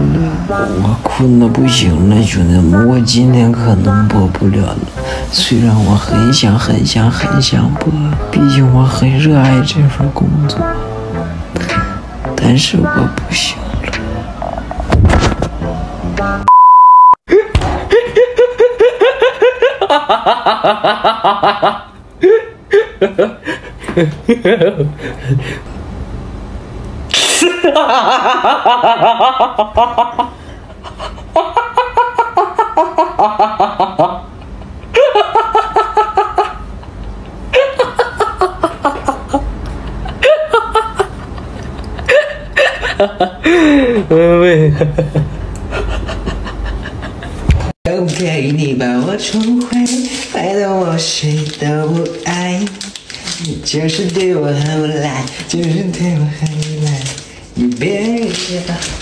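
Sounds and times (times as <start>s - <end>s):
censor bleep: 16.5s - 17.2s
young man laughing hard: 17.3s - 25.7s, 27.2s - 47.7s.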